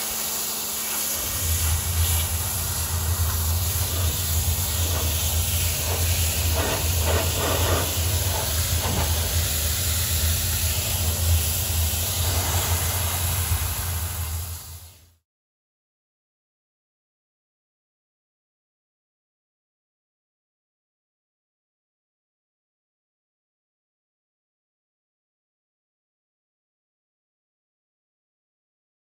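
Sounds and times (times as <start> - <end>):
low steady drone: 0.0 - 15.2
steam jet hissing: 0.0 - 15.2.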